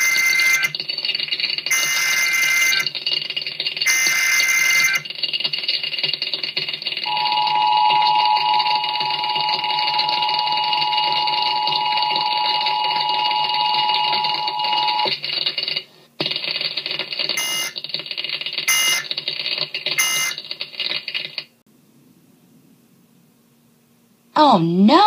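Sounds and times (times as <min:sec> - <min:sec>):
data tone bursts: 0:00.0 - 0:00.8, 0:01.7 - 0:02.9, 0:03.8 - 0:05.1, 0:07.0 - 0:15.1, 0:17.4 - 0:17.8, 0:18.7 - 0:19.1, 0:20.0 - 0:20.4
two-tone alert signal: 0:01.7 - 0:02.8, 0:03.9 - 0:05.0, 0:07.1 - 0:15.1, 0:17.4 - 0:17.8, 0:18.7 - 0:19.1, 0:20.0 - 0:20.4.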